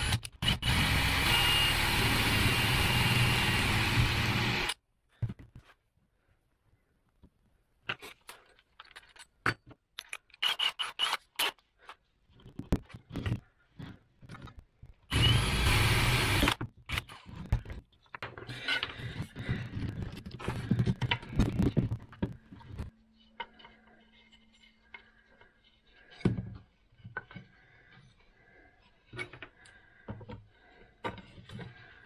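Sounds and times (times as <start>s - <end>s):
drill boring into wood: 0.0s - 4.8s, 15.1s - 16.6s.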